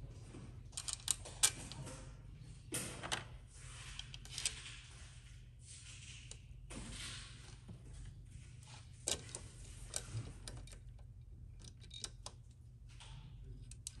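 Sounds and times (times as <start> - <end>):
plastic parts clicking and tapping: 0.7 - 2.0, 9.0 - 14.0.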